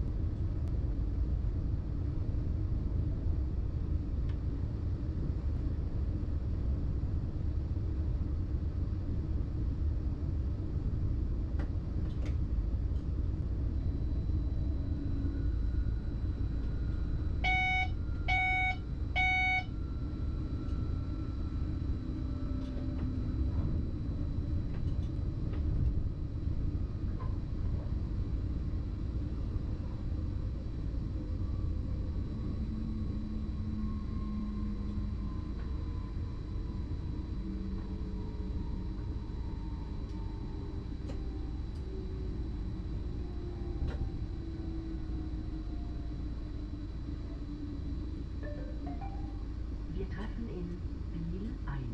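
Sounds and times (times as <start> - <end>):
train low rumble: 0.0 - 51.9
short electronic beeps: 17.4 - 19.7.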